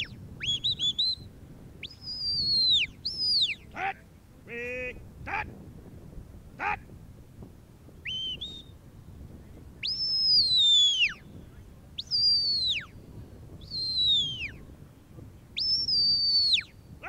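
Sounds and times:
rising two-note whistle: 0.0 - 1.3, 9.8 - 11.3, 12.0 - 13.0, 13.7 - 14.6
long high sliding whistles: 0.0 - 3.6, 8.0 - 8.8, 9.8 - 14.6, 15.6 - 16.8.

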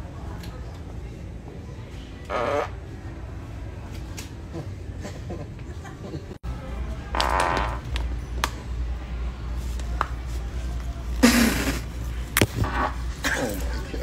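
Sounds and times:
farts: 11.2 - 11.8.

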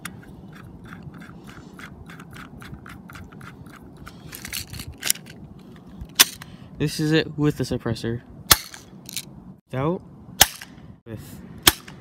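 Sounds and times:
suppressor threads clicking and scraping: 0.0 - 6.5.

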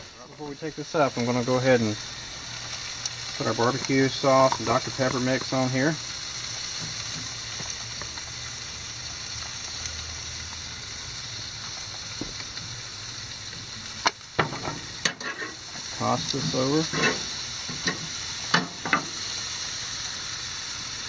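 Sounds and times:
chicken sizzling on a grill: 0.0 - 21.0.

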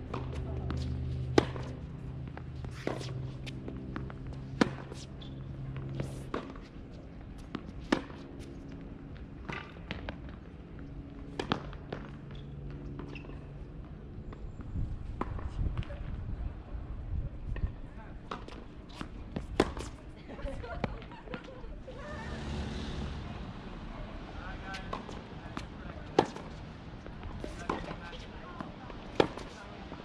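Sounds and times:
tennis ball hit by rackets: 0.1 - 1.8, 2.4 - 6.7, 7.4 - 8.2, 18.3 - 20.0, 24.5 - 30.0.

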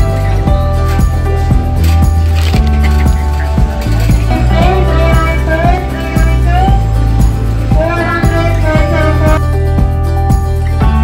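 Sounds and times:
background music with steady beat: 0.0 - 11.0.

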